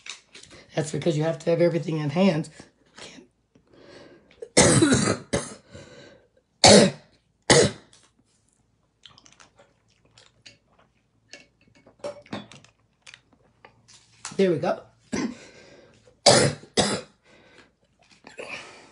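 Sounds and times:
woman coughing: 0:04.5 - 0:05.6, 0:15.1 - 0:15.4, 0:16.3 - 0:17.2.

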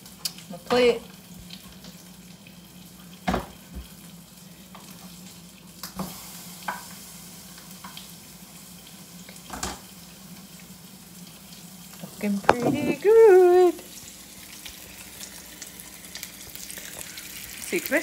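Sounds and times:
food sizzling in a pan: 0:00.0 - 0:18.0
kitchenware knocking: 0:12.4 - 0:13.1.

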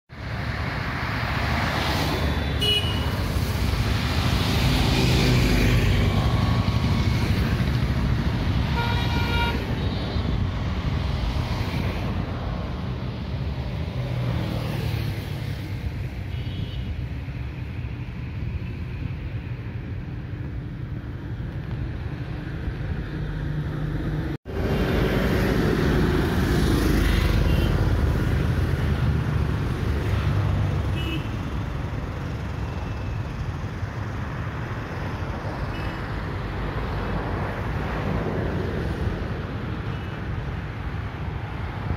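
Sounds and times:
rumble of passing vehicles: 0:00.1 - 0:41.9
car horn toots: 0:08.7 - 0:09.9.

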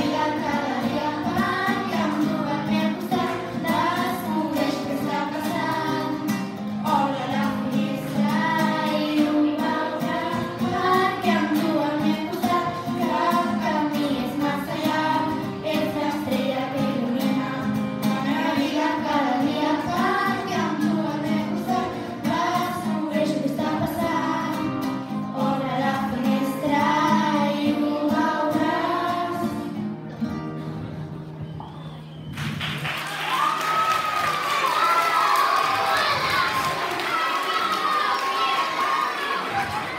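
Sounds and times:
girls singing pop song: 0:00.0 - 0:29.8.

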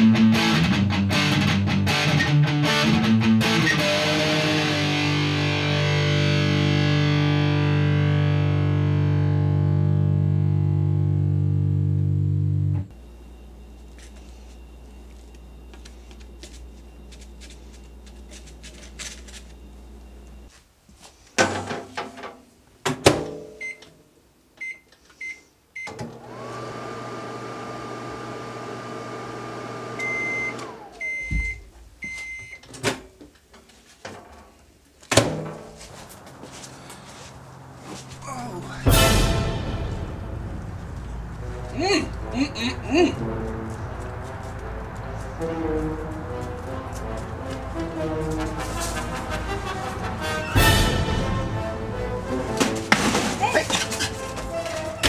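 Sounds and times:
background music: 0:00.0 - 0:12.9, 0:38.2 - 0:55.0
microwave humming: 0:09.3 - 0:20.5, 0:25.9 - 0:31.7
long microwave beeps: 0:12.9 - 0:18.4, 0:19.2 - 0:20.5, 0:23.6 - 0:23.9, 0:24.6 - 0:26.0, 0:30.0 - 0:32.6.

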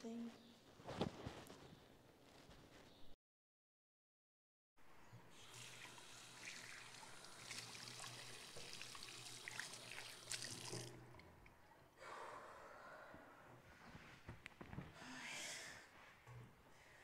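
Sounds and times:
trickling water: 0:05.2 - 0:11.6.

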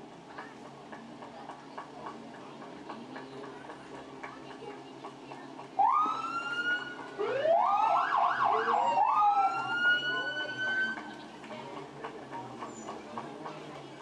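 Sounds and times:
siren wailing: 0:05.8 - 0:11.0
siren yelping: 0:05.8 - 0:11.0.

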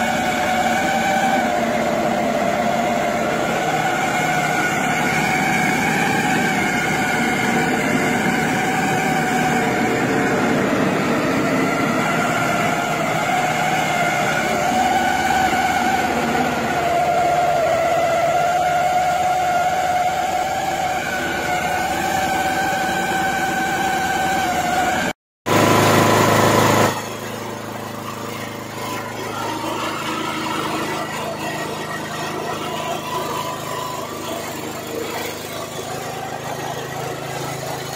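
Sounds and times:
small engine machine humming: 0:00.0 - 0:37.9.

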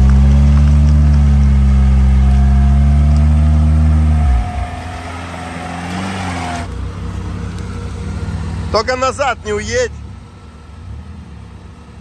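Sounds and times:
off-road vehicle engine under load: 0:00.0 - 0:12.0
thin rising whine: 0:02.0 - 0:06.7.

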